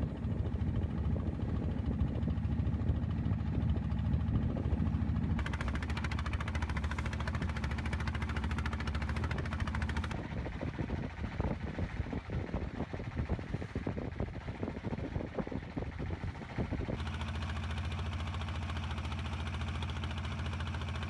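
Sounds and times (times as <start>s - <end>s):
boat engine running: 0.0s - 21.0s
wake water rushing along hull: 0.0s - 21.0s.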